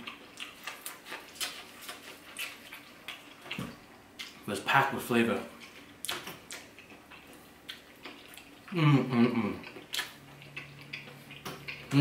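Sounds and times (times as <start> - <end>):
mouth eating sounds: 5.4 - 12.0
man humming: 8.7 - 9.7.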